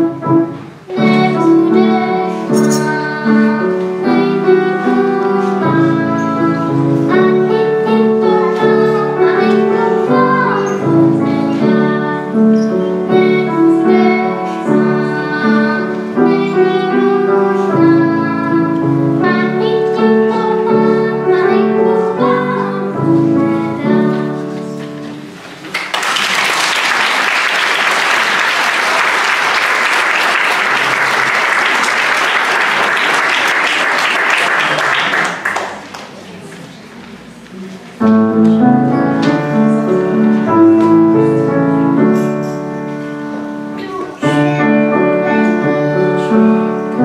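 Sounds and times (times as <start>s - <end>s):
piano accompaniment: 0.0s - 35.9s, 37.2s - 47.0s
audience applause: 25.6s - 36.2s
person singing: 43.8s - 47.0s.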